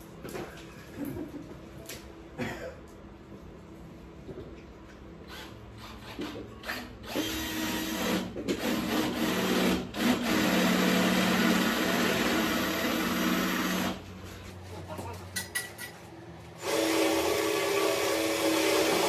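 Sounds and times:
electric drill boring into wall: 0:05.3 - 0:14.0, 0:16.6 - 0:19.0.

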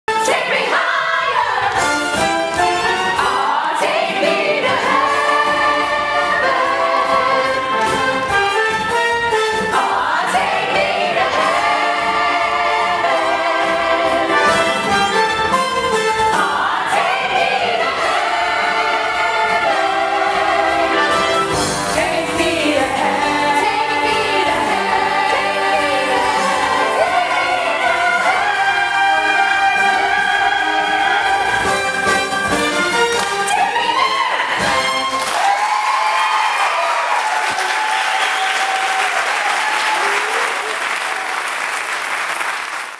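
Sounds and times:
choir singing: 0:00.1 - 0:08.7, 0:09.6 - 0:35.1
instrumental accompaniment: 0:01.4 - 0:35.3.

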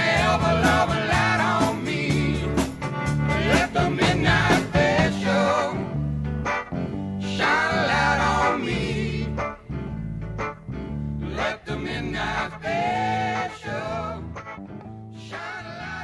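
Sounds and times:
repeating bass line: 0:00.0 - 0:16.0
person singing: 0:03.3 - 0:05.9.

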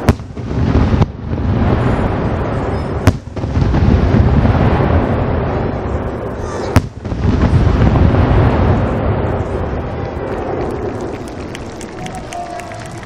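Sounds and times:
sharp firework bang: 0:00.0 - 0:09.2
fireworks bursting: 0:00.0 - 0:13.0.

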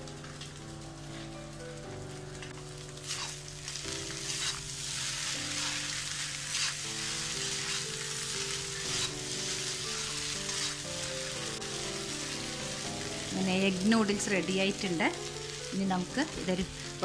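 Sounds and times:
noodles sizzling in a wok: 0:00.0 - 0:17.0
soft background music: 0:00.0 - 0:17.0
metal spatula scraping: 0:03.0 - 0:03.4, 0:04.2 - 0:10.9.

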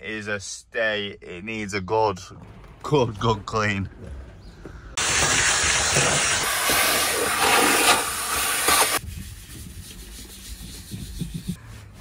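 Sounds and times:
pressure washer spraying water: 0:05.0 - 0:09.0.

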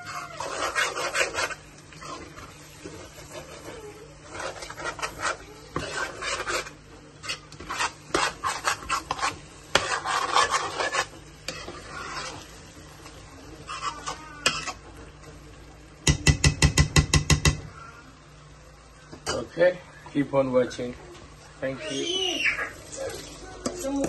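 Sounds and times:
spoon scraping a cooking pot: 0:00.0 - 0:15.1
sharp knocks against a pot: 0:16.0 - 0:17.6.

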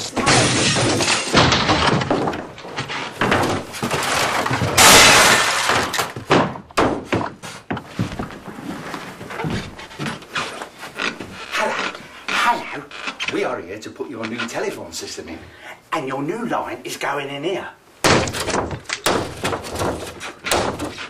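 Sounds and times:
sharp knocks and thuds: 0:00.0 - 0:05.0, 0:05.7 - 0:08.6, 0:18.0 - 0:21.0
things crashing and smashing: 0:00.0 - 0:07.1, 0:18.0 - 0:21.0.

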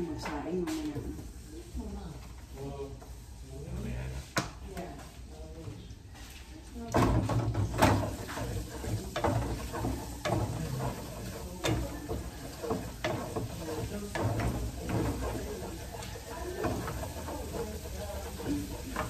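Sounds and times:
light sizzle of frying: 0:00.0 - 0:19.0
wooden spatula scraping a pan: 0:07.0 - 0:19.0.

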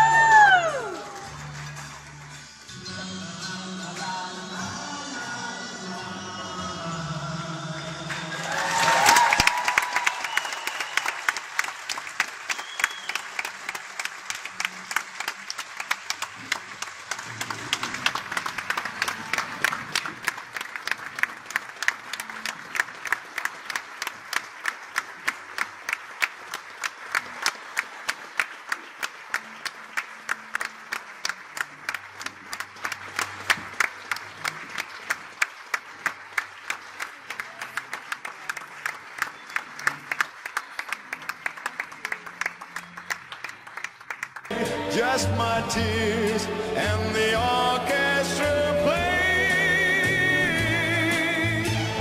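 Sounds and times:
audience applauding: 0:00.0 - 0:02.6, 0:07.8 - 0:45.6
steady nearby hand clapping: 0:08.1 - 0:44.5.

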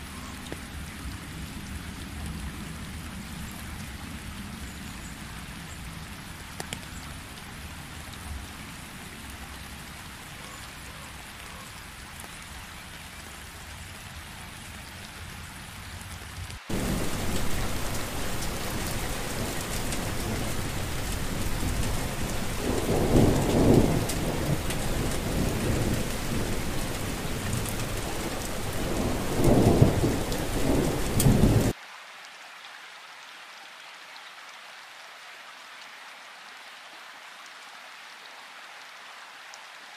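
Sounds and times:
rain falling on wet ground: 0:00.0 - 0:39.9
thunder rumbling: 0:16.7 - 0:31.7.

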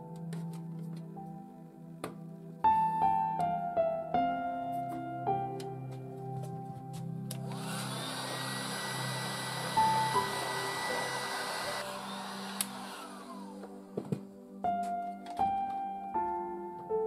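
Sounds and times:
fan winding down: 0:07.3 - 0:13.8
heat gun blowing with whine: 0:07.3 - 0:13.9.

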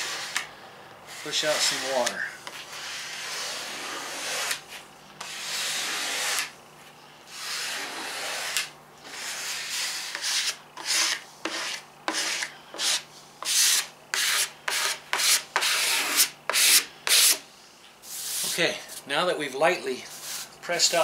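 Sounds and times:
squeegee rubbing over paper: 0:01.1 - 0:06.5.

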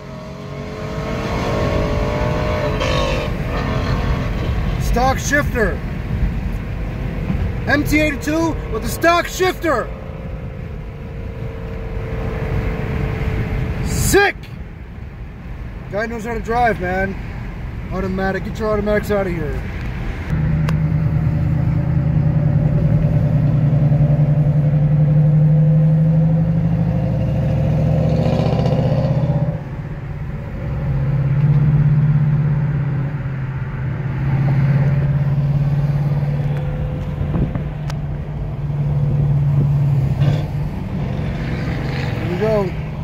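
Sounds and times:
loud car exhaust revving: 0:00.0 - 0:04.9, 0:20.3 - 0:29.7.

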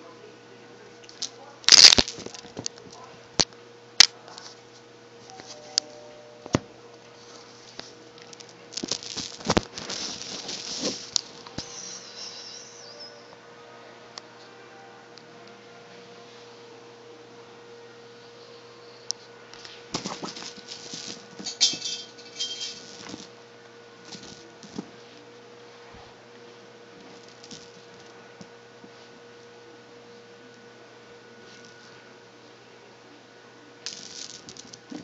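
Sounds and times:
faint electrical hum: 0:00.0 - 0:35.0
cat toy rattling on tile floor: 0:08.8 - 0:11.4, 0:20.0 - 0:23.3.

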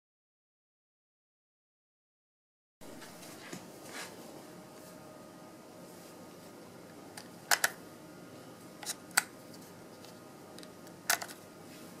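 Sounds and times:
plastic battery latch clicks: 0:07.5 - 0:07.8.

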